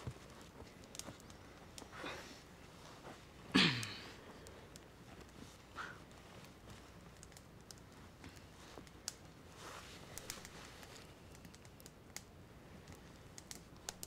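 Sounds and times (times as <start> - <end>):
hands rustling small object: 0.0 - 3.4, 4.2 - 14.0
low background hiss: 0.0 - 14.0
small clicks: 6.4 - 9.3, 10.1 - 14.0.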